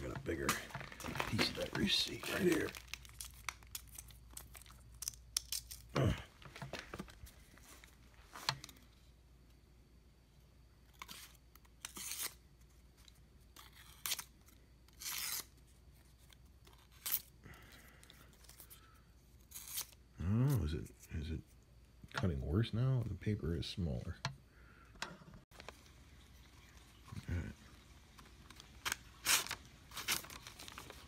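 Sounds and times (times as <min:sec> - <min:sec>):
knife slicing paper: 0:11.1 - 0:12.4, 0:14.9 - 0:15.6, 0:28.8 - 0:30.9.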